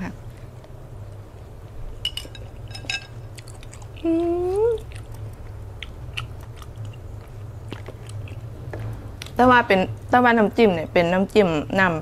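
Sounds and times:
person chewing: 3.3s - 9.4s
woman humming mmm: 4.0s - 4.8s.

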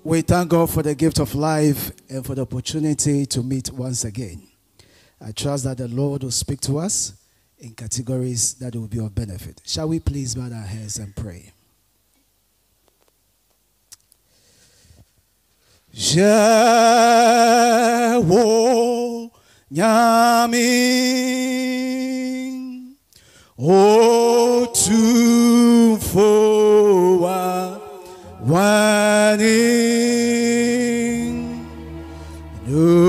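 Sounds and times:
man singing unaccompanied: 16.0s - 23.0s, 23.6s - 33.0s
low steady tones: 24.9s - 33.0s.

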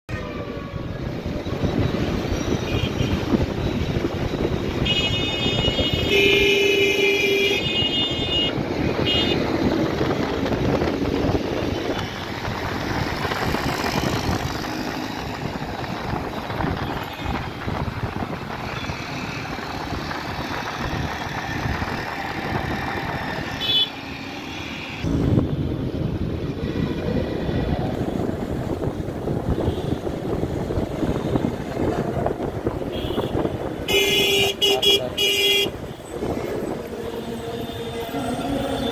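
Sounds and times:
wind noise: 0.1s - 23.8s, 25.0s - 38.9s
vehicle horns honking: 2.6s - 3.4s, 4.7s - 9.5s, 23.4s - 25.1s, 32.8s - 36.0s.

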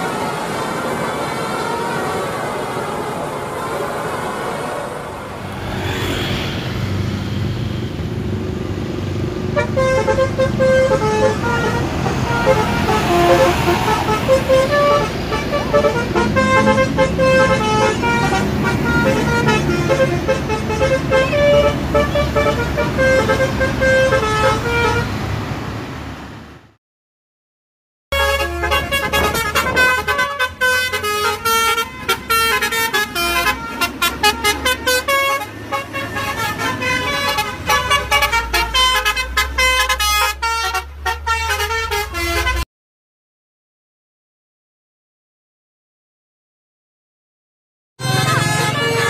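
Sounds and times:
multi-tone bus horns playing tunes: 0.0s - 6.1s, 9.4s - 25.3s, 28.1s - 42.7s, 48.0s - 49.0s
bus engine rumble: 0.0s - 26.8s, 28.2s - 42.6s, 48.0s - 49.0s.

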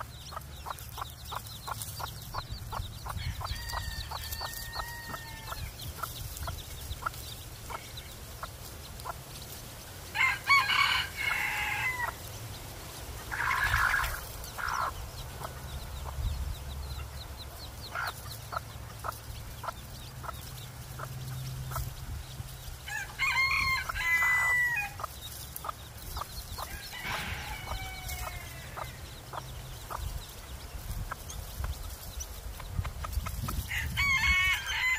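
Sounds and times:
hen clucking: 0.0s - 9.6s, 13.1s - 34.9s
chicks peeping: 0.0s - 34.9s
rooster crowing: 3.2s - 5.6s, 10.1s - 12.2s, 22.9s - 25.0s, 26.7s - 29.0s, 33.7s - 34.9s.

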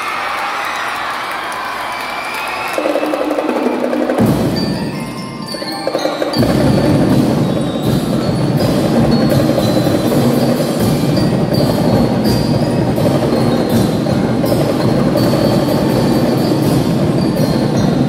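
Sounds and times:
snare drums: 2.3s - 18.0s
bell lyres playing melody: 4.3s - 18.0s.

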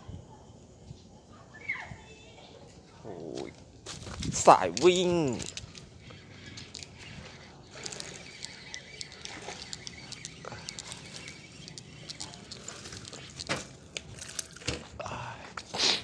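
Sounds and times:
fishing reel clicks and scrapes: 3.9s - 14.7s.

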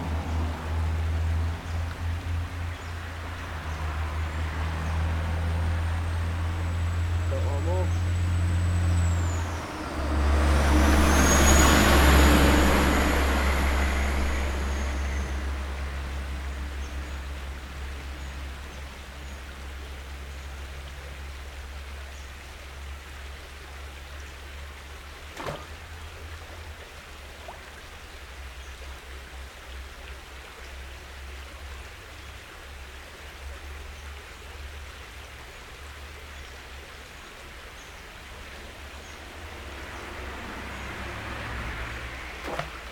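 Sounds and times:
motor vehicle passing: 0.0s - 21.7s, 38.2s - 42.9s.

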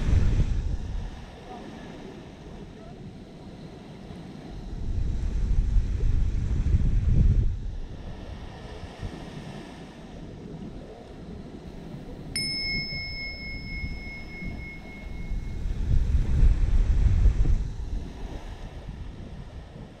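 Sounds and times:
surf: 0.0s - 20.0s
wind rumble on microphone: 0.0s - 20.0s
bell chime ringing: 12.4s - 15.8s.

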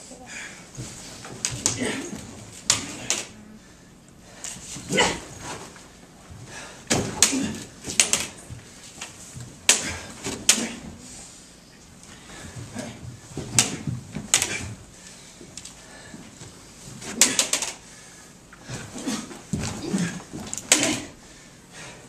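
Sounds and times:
lightsaber blades clashing: 9.6s - 11.0s.

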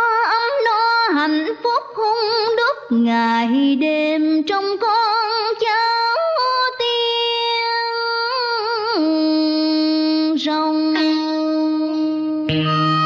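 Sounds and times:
voice singing with vibrato: 10.2s - 13.0s
soft musical accompaniment: 10.9s - 13.0s.

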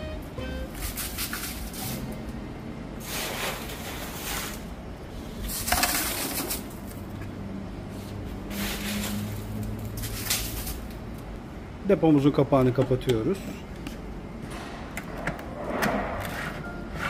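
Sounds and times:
ice scraping in a plastic barrel: 3.0s - 4.6s, 5.5s - 6.8s.

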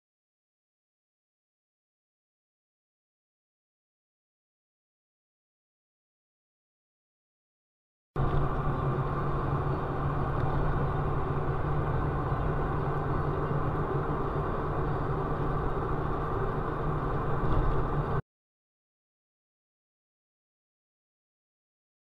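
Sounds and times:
car engine and road noise: 8.2s - 18.2s.

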